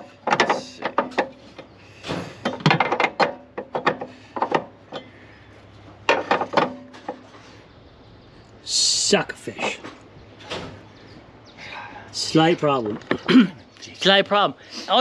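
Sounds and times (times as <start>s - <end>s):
metal parts knocking and scraping: 0.0s - 5.2s, 6.0s - 7.4s.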